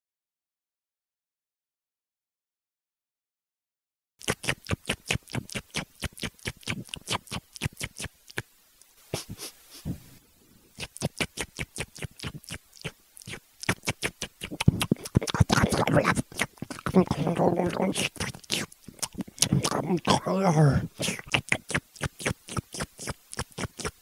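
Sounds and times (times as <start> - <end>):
rabbits licking paws: 4.2 - 24.0.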